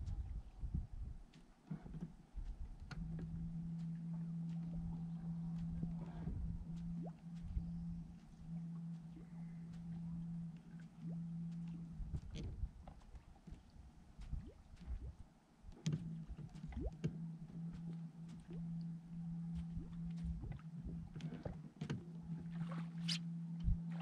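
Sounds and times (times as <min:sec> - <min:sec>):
water lapping against hull: 0:00.0 - 0:24.0
electric trolling motor humming: 0:02.8 - 0:13.0, 0:15.8 - 0:24.0.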